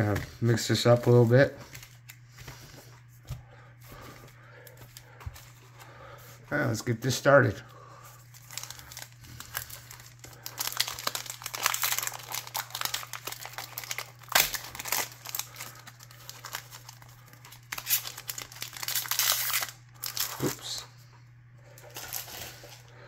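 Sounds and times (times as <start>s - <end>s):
wrapper crinkling and tearing: 8.2s - 20.8s, 21.9s - 22.8s.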